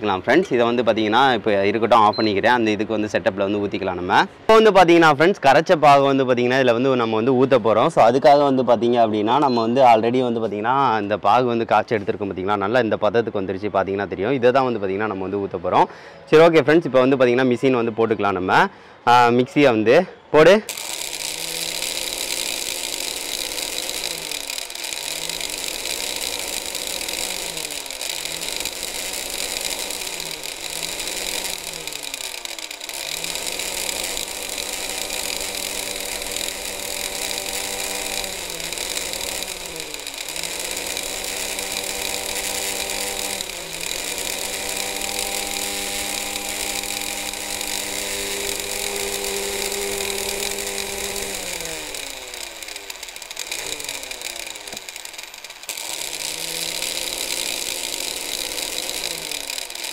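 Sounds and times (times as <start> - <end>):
mixer motor whining: 0.0 - 3.6, 20.5 - 59.9.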